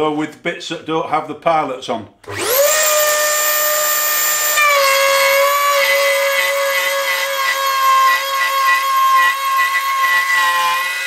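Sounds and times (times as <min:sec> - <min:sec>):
router bit cutting wood: 0:02.2 - 0:11.0
rotary tool whine: 0:02.3 - 0:11.0.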